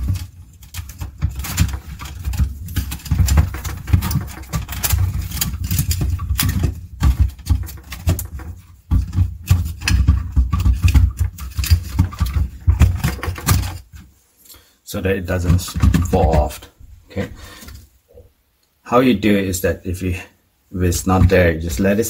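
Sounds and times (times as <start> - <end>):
plastic knocks and clicks: 0.0 - 14.0, 15.4 - 16.7.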